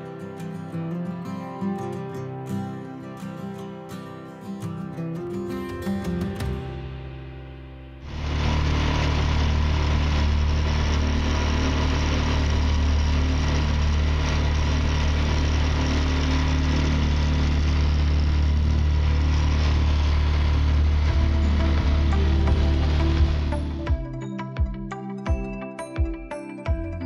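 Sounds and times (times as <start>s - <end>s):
outboard motor running: 8.0s - 24.7s.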